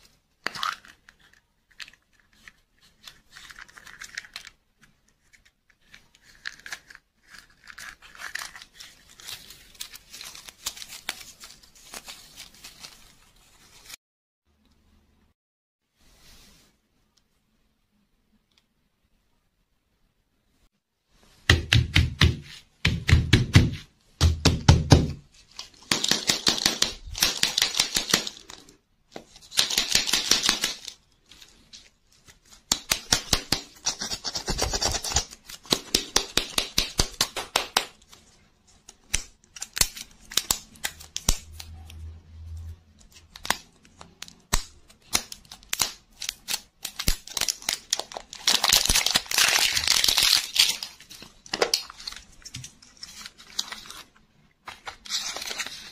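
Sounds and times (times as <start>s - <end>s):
crinkly wrappers tearing: 0.4s - 4.6s, 6.1s - 13.8s, 43.1s - 55.9s.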